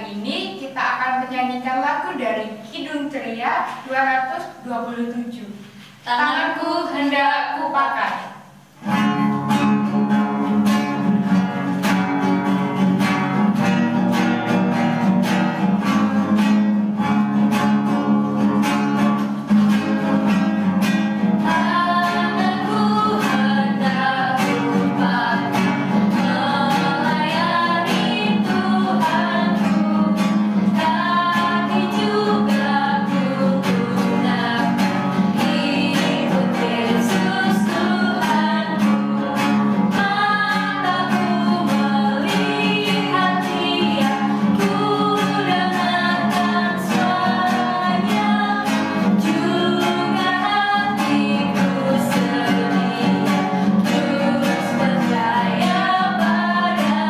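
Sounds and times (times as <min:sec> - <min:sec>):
strummed guitar: 0:08.4 - 0:57.0
women singing: 0:21.2 - 0:57.0.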